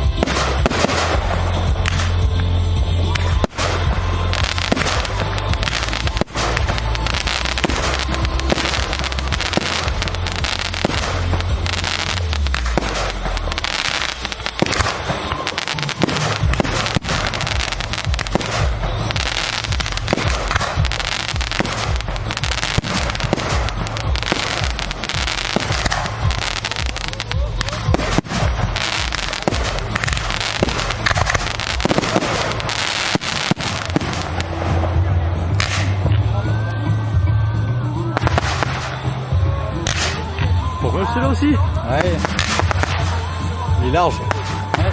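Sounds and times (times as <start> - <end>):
fireworks crackling and popping: 0.0 - 36.9, 37.9 - 44.9
deep rumble: 0.0 - 40.8.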